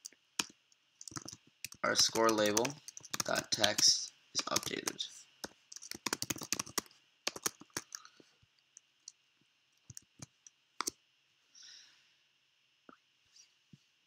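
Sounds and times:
keyboard keys clicking: 0.0s - 5.0s, 5.7s - 8.0s.

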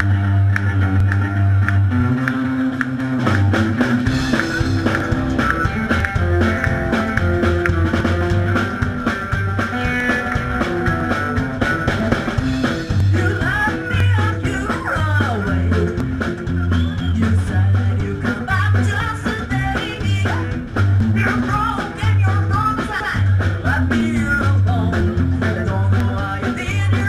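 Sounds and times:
rockabilly band playing: 0.0s - 27.0s
woman singing: 13.1s - 15.8s, 17.2s - 20.6s, 21.2s - 27.0s.

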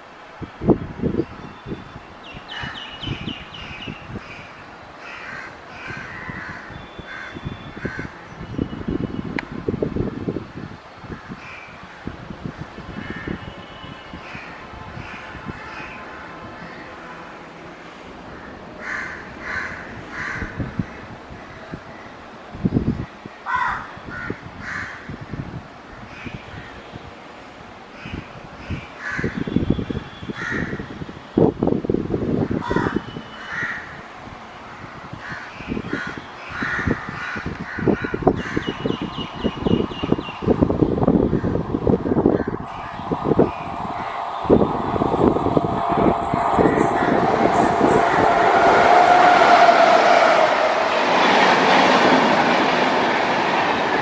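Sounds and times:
wind rumbling on microphone: 0.0s - 17.1s, 18.2s - 54.0s
crows cawing: 5.0s - 8.1s, 18.8s - 20.6s, 23.5s - 25.0s.

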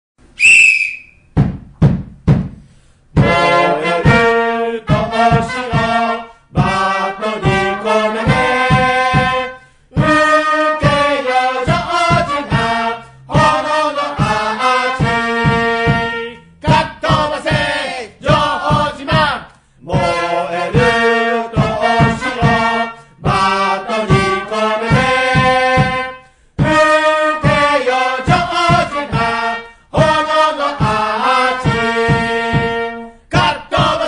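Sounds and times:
short high whistle: 0.3s - 1.3s
drum beats: 1.2s - 34.0s
trumpets playing a march: 3.2s - 17.8s, 20.0s - 34.0s.

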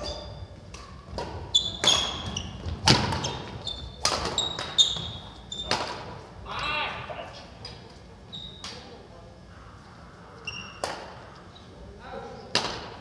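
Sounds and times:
sneakers squeaking on court: 0.0s - 5.9s
rackets striking shuttlecock: 0.7s - 4.8s, 12.5s - 13.0s.

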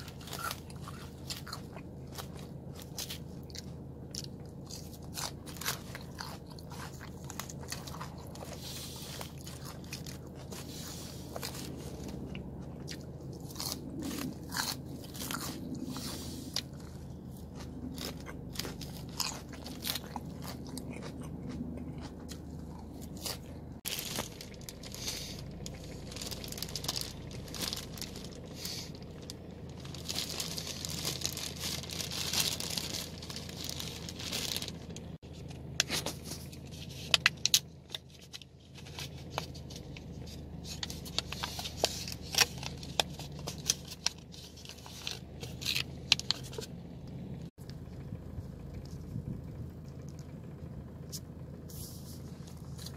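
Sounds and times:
chewing and crunching food: 0.0s - 52.9s.

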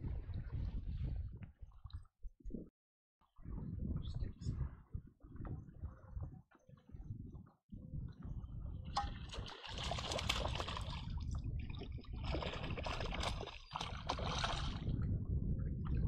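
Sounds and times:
steady low rumble: 3.4s - 9.4s
fish splashing at water surface: 9.0s - 11.2s, 12.2s - 14.8s.

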